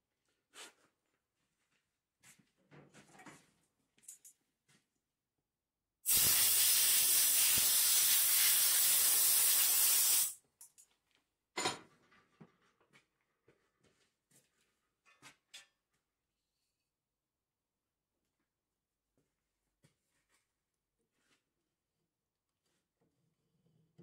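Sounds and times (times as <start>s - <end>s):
air blow gun hissing: 6.1s - 10.4s.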